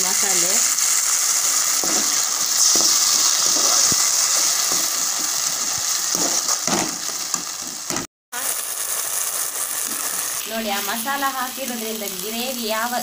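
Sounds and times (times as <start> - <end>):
food sizzling in a pan: 0.0 - 13.0.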